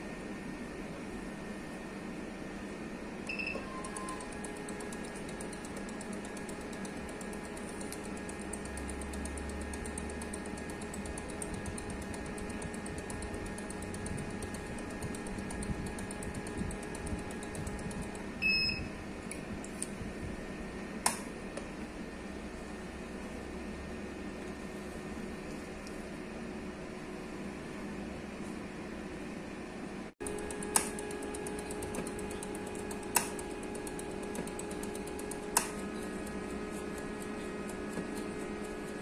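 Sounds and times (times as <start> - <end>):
analyzer pump ticking: 3.8 - 18.2, 30.2 - 39.0.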